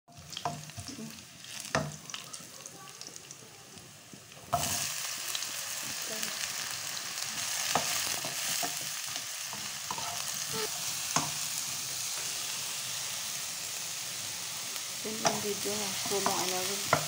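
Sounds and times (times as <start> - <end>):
vegetables sizzling in oil: 0.1 - 17.0
spatula knocking and scraping pan: 15.2 - 17.0.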